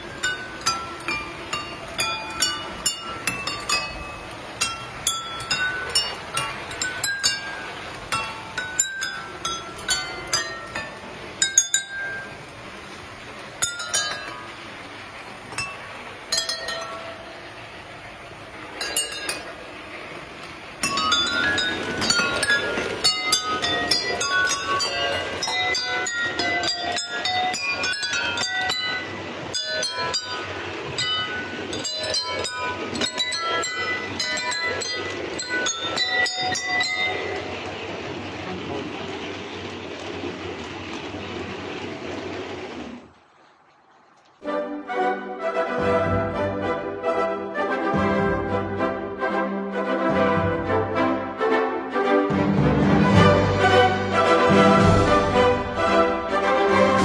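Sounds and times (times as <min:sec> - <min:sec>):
glasses struck playing a melody: 0:00.0 - 0:12.4, 0:13.6 - 0:14.6, 0:15.6 - 0:17.4, 0:18.8 - 0:19.6, 0:20.8 - 0:37.4
model train running: 0:00.0 - 0:43.5.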